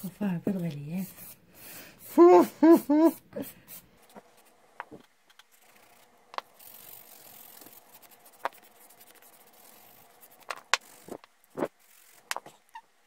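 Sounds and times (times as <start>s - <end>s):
nail file rasping: 4.8s - 12.8s.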